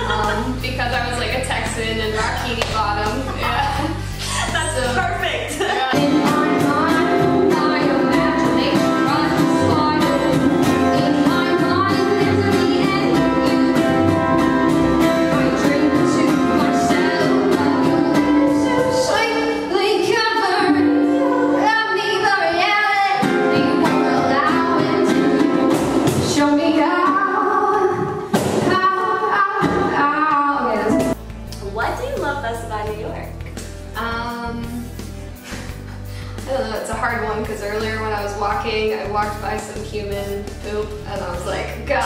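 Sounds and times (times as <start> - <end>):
cajon beat: 0.0 - 19.4, 23.1 - 42.0
upright bass: 0.0 - 21.8, 30.0 - 42.0
woman singing: 0.0 - 31.2
acoustic guitar: 0.0 - 42.0.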